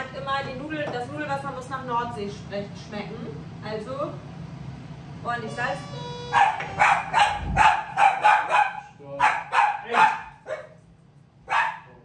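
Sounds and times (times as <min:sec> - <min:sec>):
dog barking: 0:06.3 - 0:10.8, 0:11.5 - 0:12.0.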